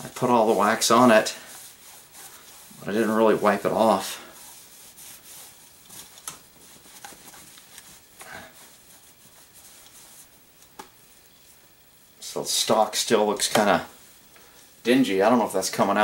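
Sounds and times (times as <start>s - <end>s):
cloth wiping wood: 0.0s - 10.6s.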